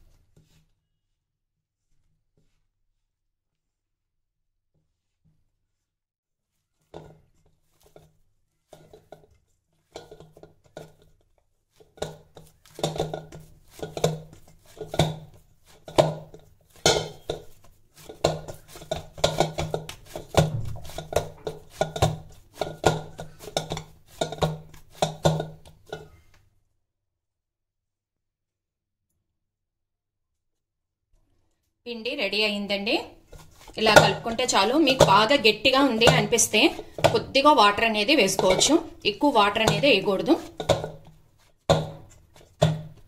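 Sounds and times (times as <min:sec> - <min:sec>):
dough knocking against steel bowl: 0:08.7 - 0:11.2, 0:11.8 - 0:26.2, 0:33.3 - 0:43.0.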